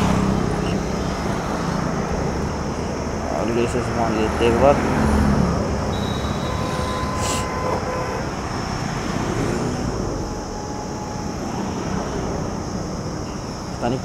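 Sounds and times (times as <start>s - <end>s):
rumble of road traffic: 0.0s - 14.0s
faint high tone: 5.9s - 13.6s.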